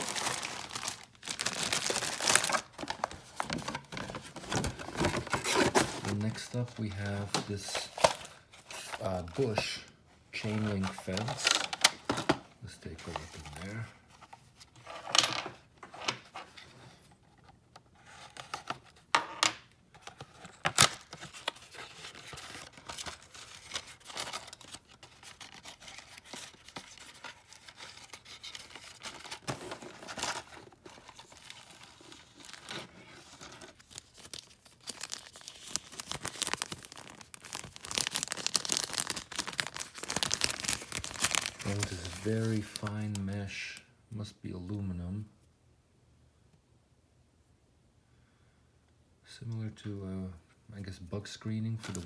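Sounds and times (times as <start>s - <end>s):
plastic bag crinkling: 0.0s - 3.7s, 33.3s - 43.2s.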